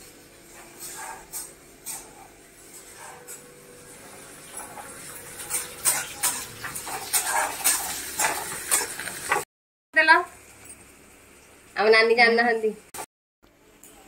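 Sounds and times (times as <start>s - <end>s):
metal stirrer scraping a steel pan: 0.5s - 3.4s, 4.0s - 9.4s.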